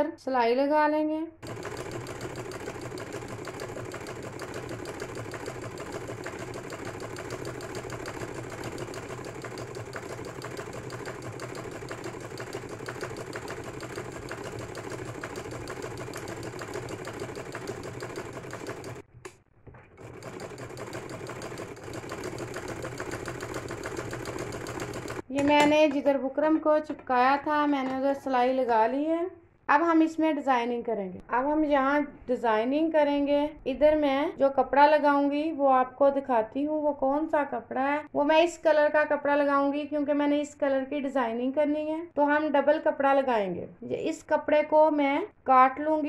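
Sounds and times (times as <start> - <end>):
sewing machine stitching: 1.4 - 19.0, 19.8 - 25.7.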